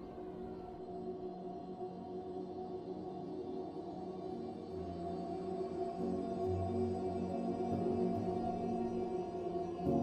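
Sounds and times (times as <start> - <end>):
ambient music with held tones: 0.0 - 10.0.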